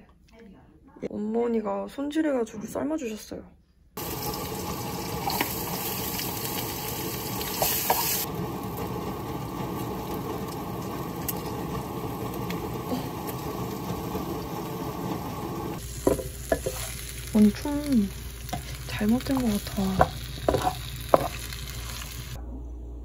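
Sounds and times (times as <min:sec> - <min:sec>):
vegetables sizzling in a frying pan: 0:04.0 - 0:22.4.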